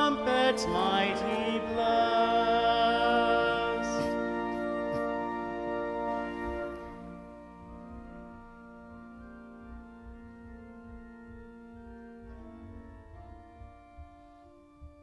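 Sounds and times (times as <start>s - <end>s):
church organ sustained chords: 0.0s - 15.0s
faint low bumps: 6.8s - 15.0s.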